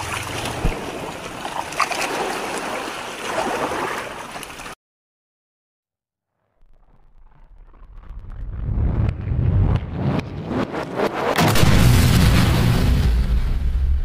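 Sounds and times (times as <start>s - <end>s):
water splashing and sloshing: 0.0s - 4.8s.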